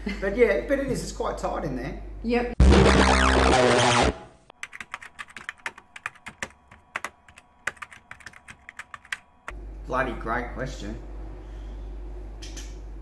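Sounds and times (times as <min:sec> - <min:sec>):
loud logo sting: 0:02.6 - 0:04.4.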